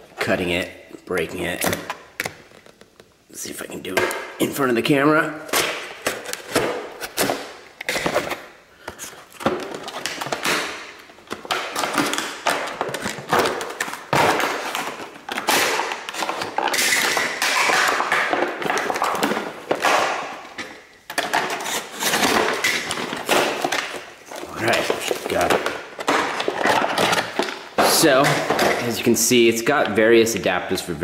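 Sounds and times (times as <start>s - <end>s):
plastic packaging crackling: 5.5s - 29.1s.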